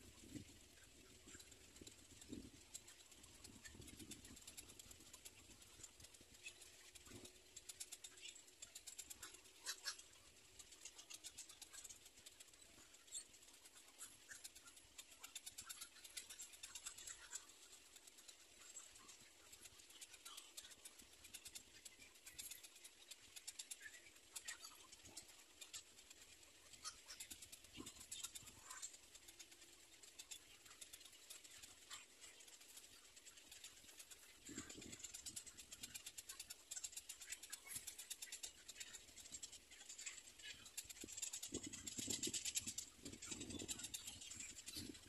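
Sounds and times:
rapid high-pitched ticking: 0.0 - 45.0.

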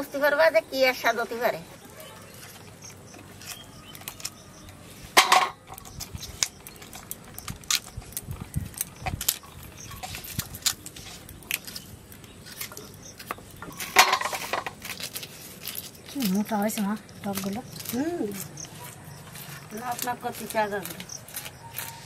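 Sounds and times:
pumpkin stems snapping: 5.7 - 22.0.

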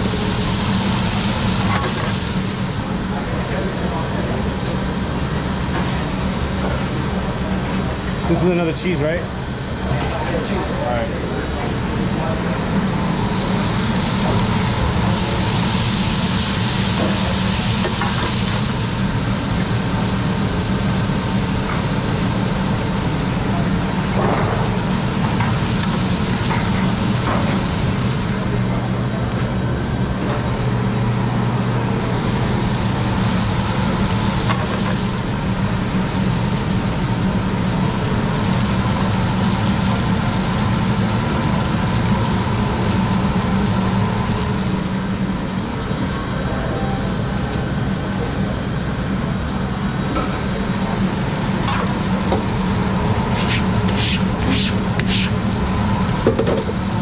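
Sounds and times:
patties sizzling on a griddle: 0.0 - 2.8, 12.5 - 28.6, 32.0 - 45.0, 50.8 - 57.0
kitchen machinery hum: 0.0 - 57.0.

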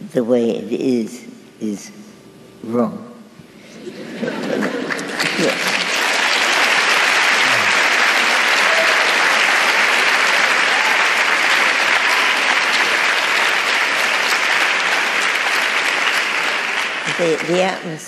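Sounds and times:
audience applauding: 4.2 - 18.0.

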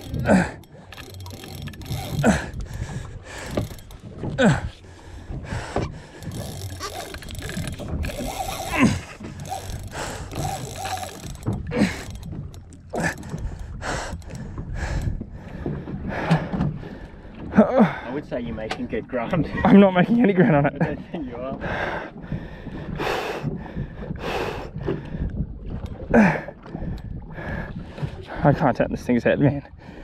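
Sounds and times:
fishing reel ratcheting and clicking: 0.0 - 4.1, 6.1 - 15.1
person grunting: 8.6 - 9.1.

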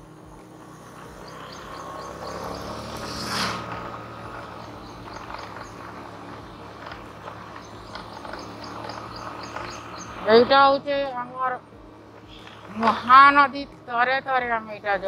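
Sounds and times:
rushing whoosh: 1.4 - 5.4.

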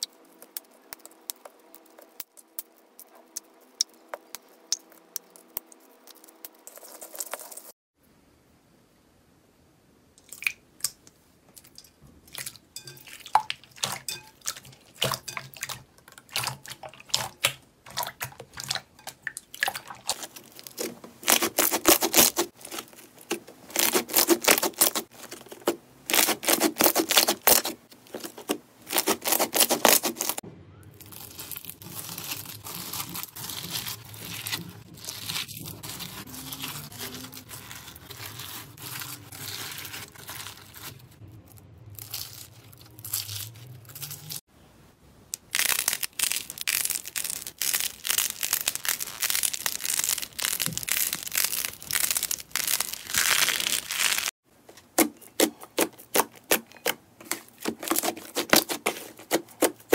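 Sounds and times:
slime stretching: 13.2 - 30.4, 31.0 - 44.4, 45.4 - 59.9.

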